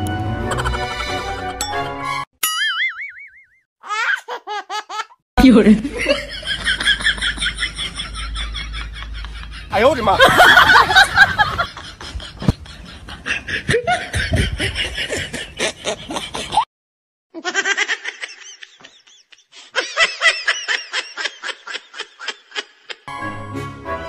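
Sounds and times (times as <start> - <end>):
person laughing: 0.4 - 1.5, 4.4 - 16.7, 17.4 - 23.1.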